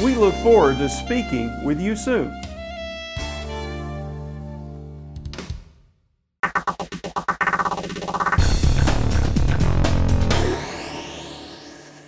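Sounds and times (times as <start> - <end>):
bass-heavy music hit: 6.4 - 12.0
pulsing logo music: 7.4 - 12.0.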